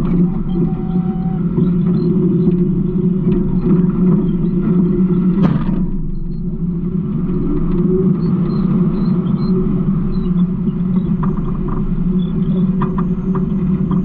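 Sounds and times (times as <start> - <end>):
diesel engine rumbling: 0.0 - 14.0.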